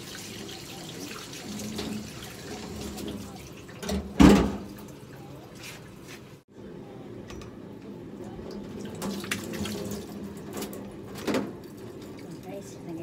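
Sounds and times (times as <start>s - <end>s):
tap water running into sink: 0.0s - 5.2s, 8.5s - 10.8s.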